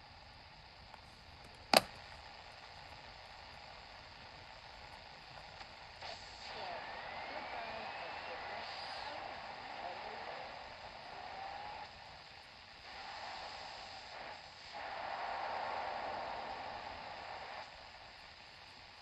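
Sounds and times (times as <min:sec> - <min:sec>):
radio static hiss: 0:00.0 - 0:19.0.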